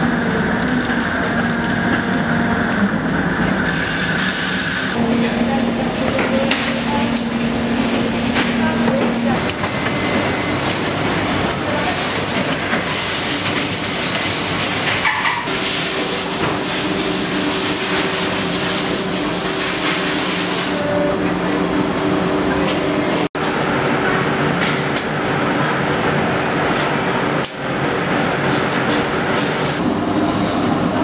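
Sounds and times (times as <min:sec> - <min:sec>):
machinery clatter: 0:00.0 - 0:05.0
steady machine hum: 0:00.0 - 0:14.9, 0:15.6 - 0:31.0.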